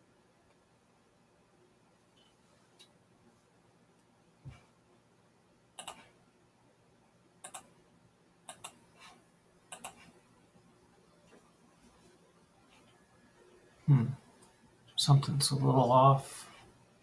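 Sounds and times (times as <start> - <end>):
computer mouse clicks: 5.8 - 6.1, 7.4 - 7.7, 8.5 - 8.8, 9.7 - 10.1.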